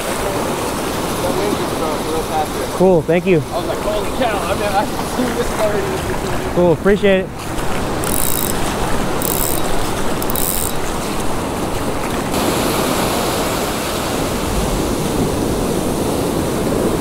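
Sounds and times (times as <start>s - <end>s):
surf washing up beach: 0.0s - 17.0s
fishing reel cranking and ticking: 8.0s - 10.9s.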